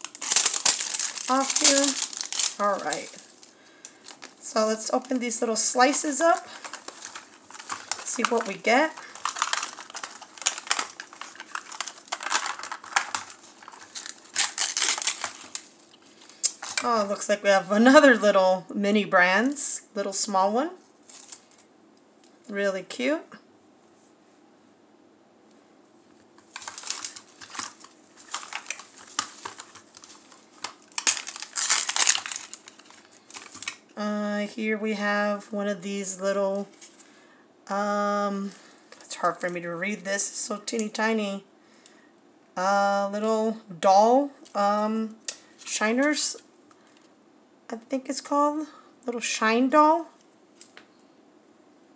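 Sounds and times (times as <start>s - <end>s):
paper crinkling: 0.0s - 17.0s, 21.0s - 21.7s, 26.4s - 33.8s.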